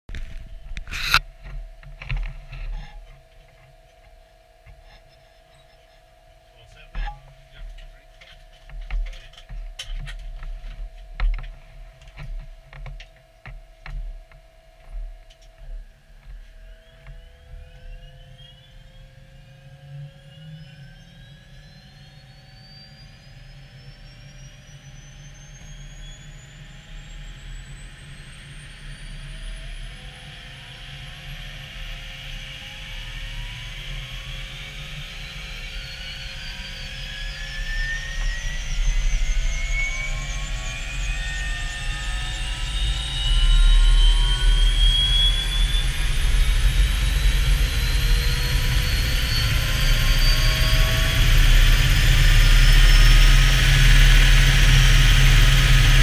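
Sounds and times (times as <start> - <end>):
helicopter turbine whine rising: 14.5 - 56.0.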